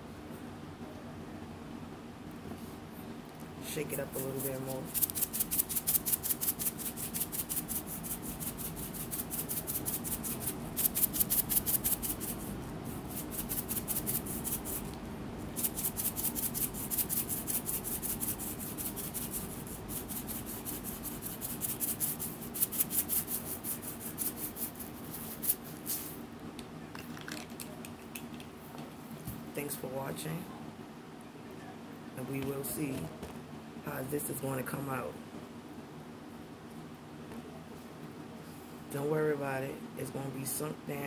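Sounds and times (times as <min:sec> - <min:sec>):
sprinkles rattling in container: 0:04.1 - 0:12.5, 0:13.1 - 0:14.8, 0:15.6 - 0:26.2, 0:27.0 - 0:28.4.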